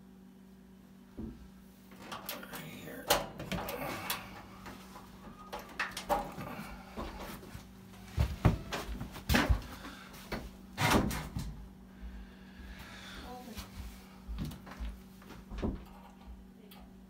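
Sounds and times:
faint steady hum: 0.0 - 17.0
metal clicks and rattles: 2.0 - 4.2.

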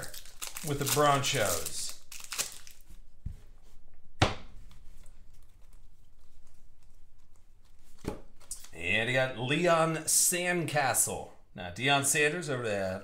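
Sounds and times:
foil pack crinkling: 0.0 - 3.0.

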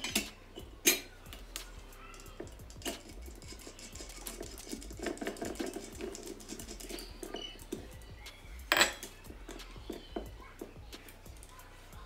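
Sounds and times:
metal clank: 0.0 - 1.1
small metal clicks and rubbing: 0.0 - 9.7.

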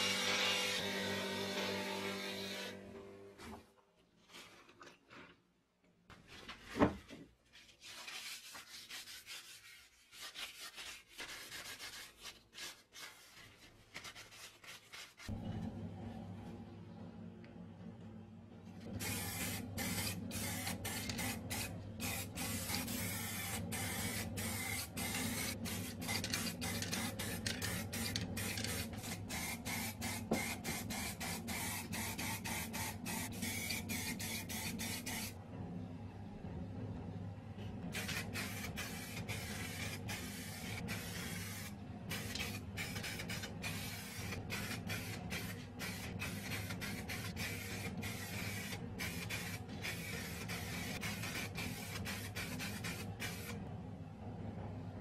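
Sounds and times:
steady low hum: 15.3 - 55.0
aerosol spray can hissing: 19.0 - 35.3, 38.0 - 53.5.

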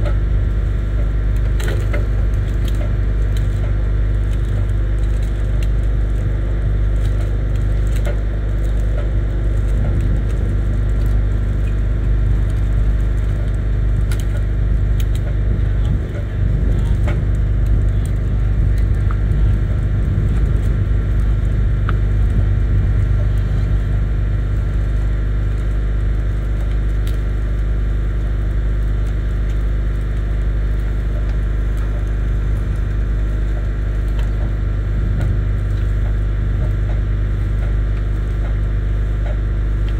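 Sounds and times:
light clicks and snaps: 1.4 - 6.2, 12.5 - 16.2
truck engine running: 6.0 - 39.9.

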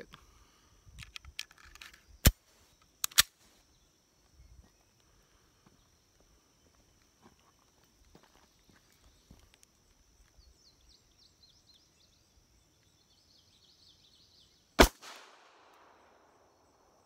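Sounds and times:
pistol metallic clicks: 3.0 - 3.4.

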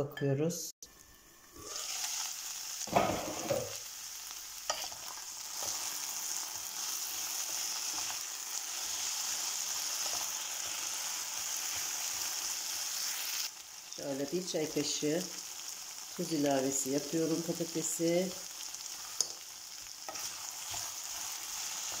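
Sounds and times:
potatoes sizzling in oil: 0.8 - 22.0
spatula scraping pan: 20.1 - 22.0.

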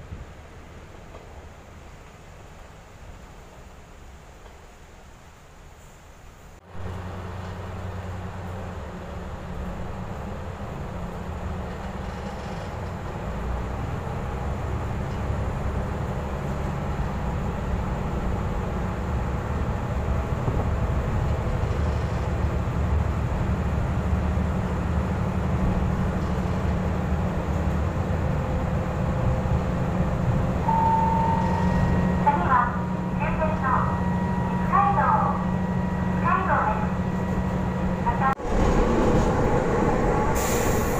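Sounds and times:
railcar engine and wheels rumbling: 0.0 - 40.9.

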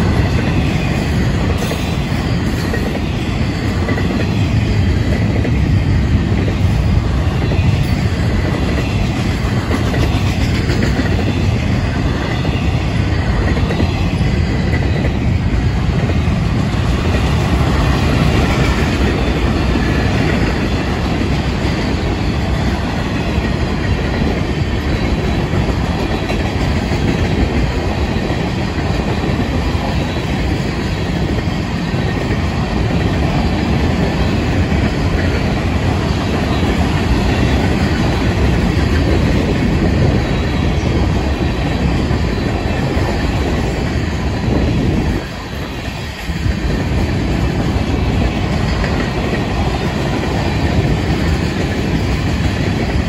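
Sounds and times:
freight train rumbling past: 0.0 - 53.0.

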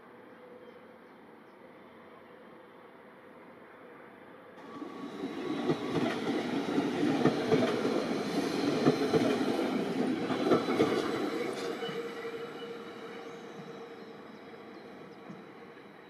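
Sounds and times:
train wheels clattering on track: 4.6 - 13.8.

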